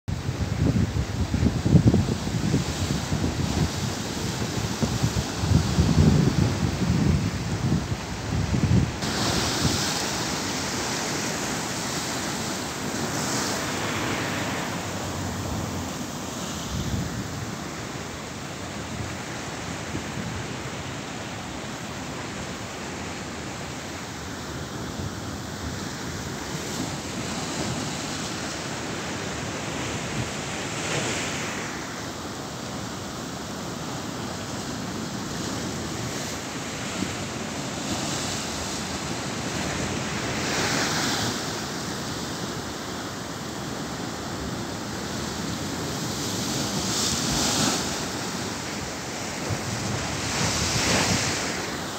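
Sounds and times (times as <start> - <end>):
sea surf breaking on rocks: 0.1 - 51.9.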